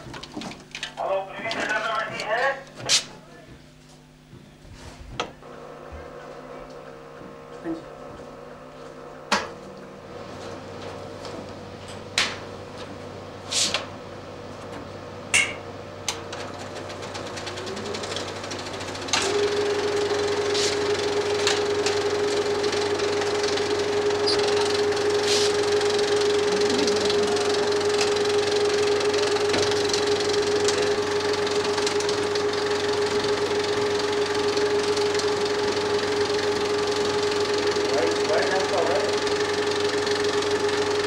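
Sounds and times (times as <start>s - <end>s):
projector mechanical clatter: 0.0s - 3.2s, 9.3s - 41.0s
steady hum: 0.0s - 40.8s
film projector clunks: 15.3s - 40.9s.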